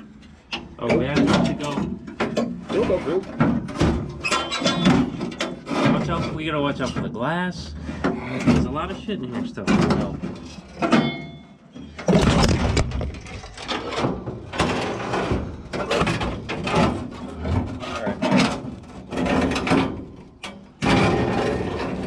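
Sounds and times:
metal car parts clunking and scraping: 0.0s - 22.0s.

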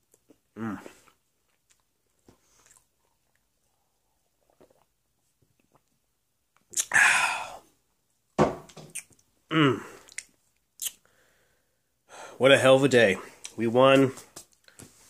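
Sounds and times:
man swallowing: 6.7s - 7.6s, 8.7s - 11.0s
wordless throat hums: 9.5s - 10.0s.

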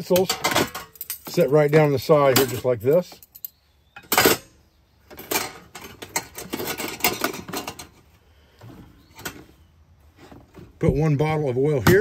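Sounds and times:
metal utensils clattering against pots: 0.0s - 3.4s, 4.0s - 4.5s, 5.1s - 8.0s.

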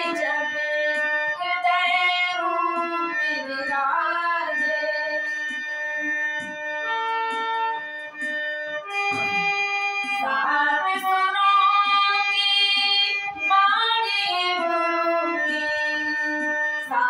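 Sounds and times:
woman singing: 0.0s - 0.7s, 1.4s - 5.3s, 10.2s - 17.0s
harmonium playing: 0.0s - 17.0s.

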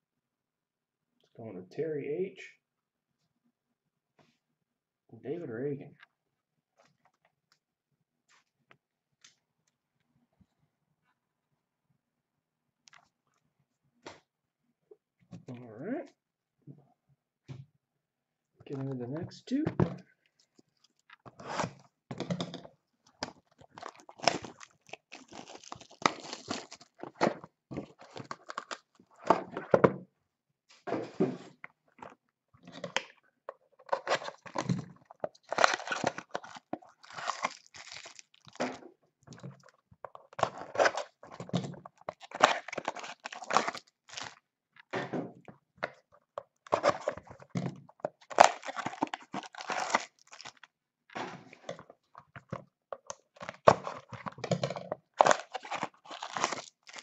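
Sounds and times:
plastic wrap crinkling: 23.0s - 29.3s, 33.8s - 44.4s, 46.6s - 50.7s, 53.3s - 57.0s
cardboard tearing and rustling: 23.2s - 29.6s, 33.8s - 38.8s, 40.3s - 44.4s, 46.7s - 47.3s, 48.2s - 50.6s, 53.4s - 57.0s.

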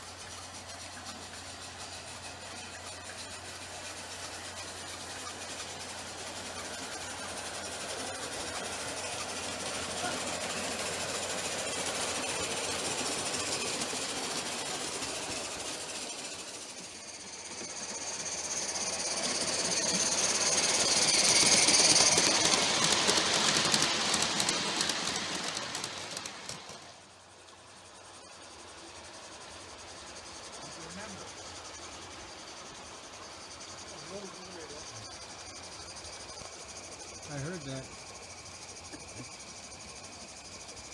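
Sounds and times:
steam chuffing and hissing: 0.0s - 40.9s
wheels clattering over rails: 4.6s - 27.0s.

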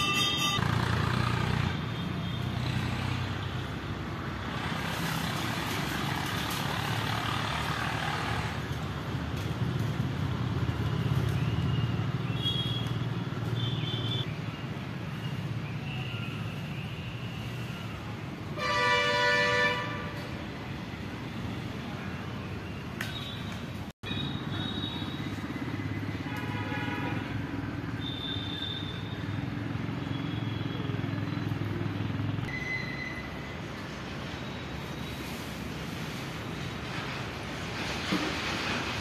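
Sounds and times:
road traffic noise: 0.0s - 39.0s
vehicle horn honking: 18.6s - 20.2s.

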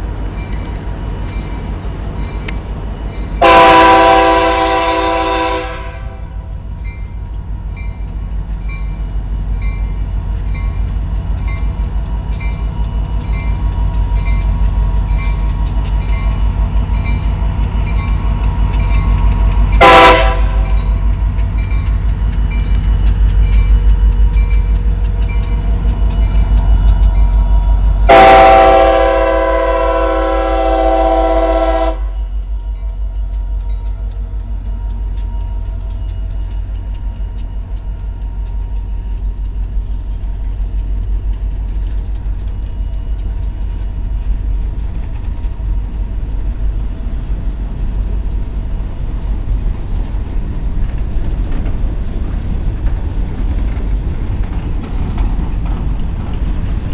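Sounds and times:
crossing bell ringing: 0.0s - 39.7s
locomotive engine rumble: 0.0s - 56.9s
train running noise: 0.0s - 56.9s
locomotive air horn blasts: 3.4s - 6.4s, 19.8s - 20.8s, 28.1s - 32.3s.

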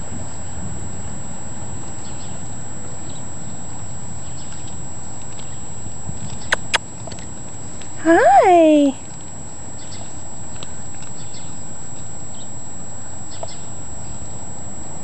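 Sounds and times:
wind noise on microphone: 0.0s - 1.8s, 5.8s - 7.2s
sharp clicks: 6.5s - 6.8s.

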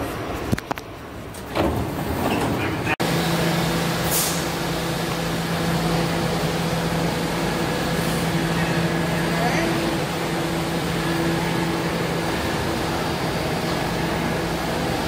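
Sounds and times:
subway train humming: 0.0s - 15.0s
brief high hiss: 4.0s - 4.6s.

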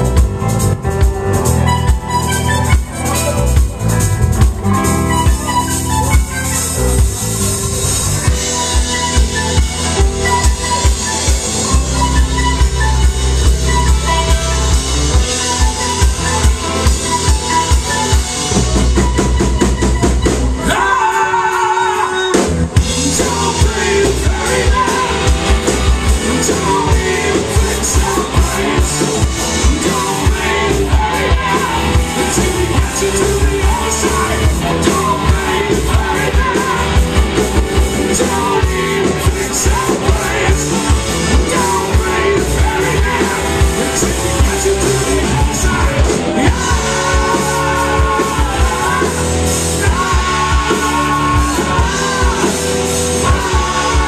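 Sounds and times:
held keyboard chord: 0.0s - 20.6s
live rock band playing: 0.0s - 54.0s
lead vocal singing: 8.2s - 54.0s.

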